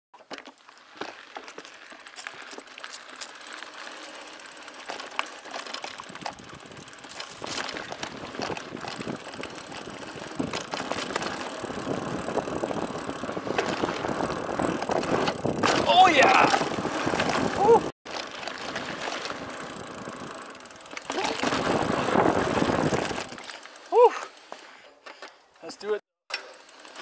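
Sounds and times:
bike rattling: 0.2 - 27.0
bike tyres rolling over dirt: 0.2 - 27.0.

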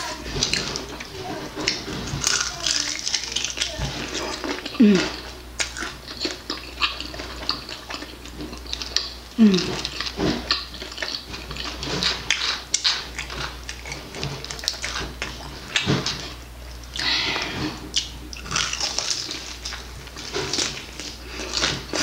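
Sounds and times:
chewing and lip-smacking: 0.0 - 22.0.

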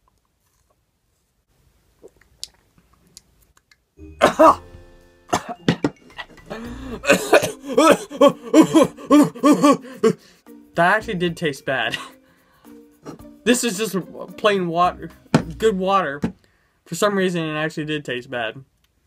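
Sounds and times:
person coughing and gagging: 4.1 - 4.6, 5.3 - 10.2.

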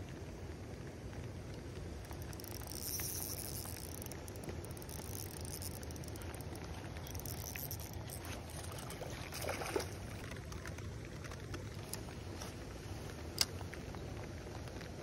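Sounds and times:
rain on pond: 0.0 - 15.0
fish splashing: 2.1 - 10.3.

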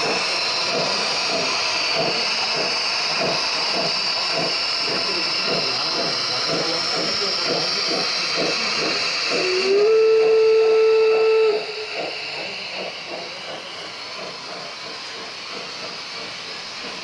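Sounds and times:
steam hiss: 0.0 - 17.0
steam locomotive chuffing: 0.0 - 17.0
train whistle blast: 9.3 - 11.9.

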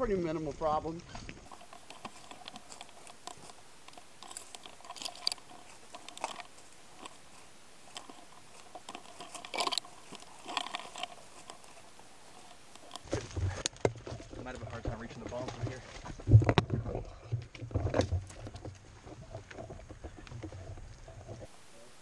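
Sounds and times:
dry brush crunching: 0.0 - 16.4
gear rustling and clicking: 0.3 - 21.6.

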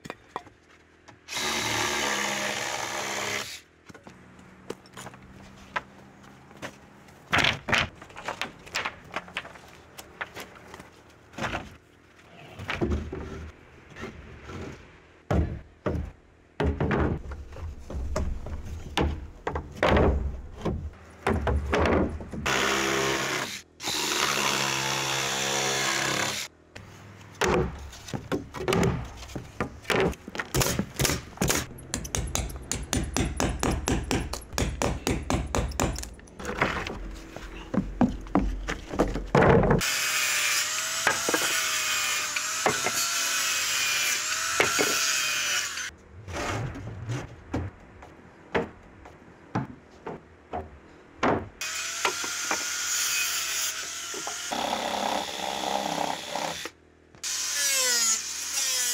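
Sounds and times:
wooden boards knocking and clicking: 7.3 - 9.6, 15.3 - 22.4, 37.7 - 39.8, 49.5 - 51.6.

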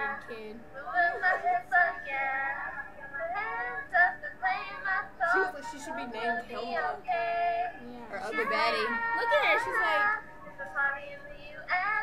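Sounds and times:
girls singing casually: 0.0 - 12.0
girls talking: 8.0 - 10.2.

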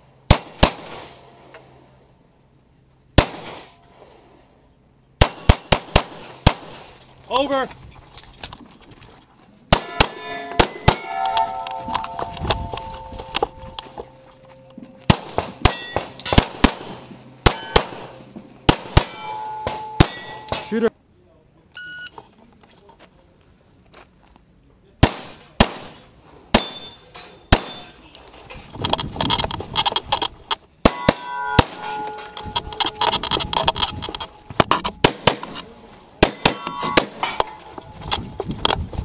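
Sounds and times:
pistol shots: 0.3 - 1.2, 3.2 - 3.8, 5.2 - 6.9, 9.7 - 11.3, 15.1 - 20.8, 25.0 - 26.0, 26.6 - 27.9, 34.9 - 35.6, 36.2 - 37.6
steel targets ringing: 0.3 - 1.4, 5.2 - 5.9, 9.7 - 20.9, 26.6 - 28.0, 30.8 - 33.3, 34.2 - 38.4.

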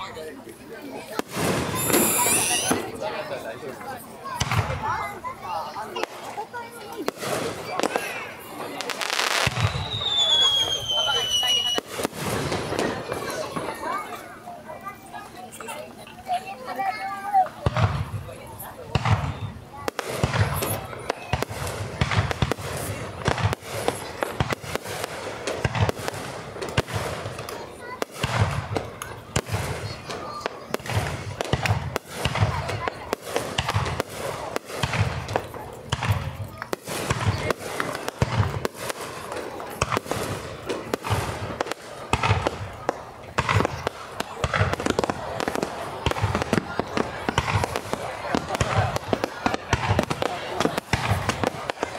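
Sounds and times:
fireworks cracking and crackling: 0.1 - 51.9
fireworks booming: 1.1 - 3.2, 4.3 - 14.2, 17.6 - 51.9
firework shells bursting: 1.2 - 3.0.

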